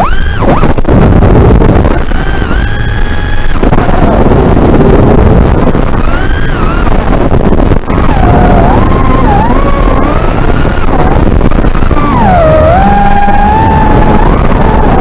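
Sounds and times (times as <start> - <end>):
drone motor whine: 0.0 - 15.0
drone propeller noise: 0.0 - 15.0
rushing wind: 0.0 - 15.0.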